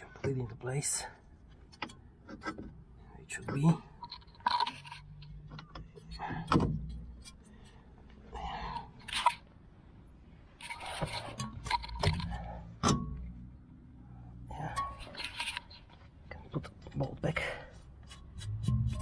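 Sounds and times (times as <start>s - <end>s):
tool clicks and metal knocks: 4.1s - 7.5s.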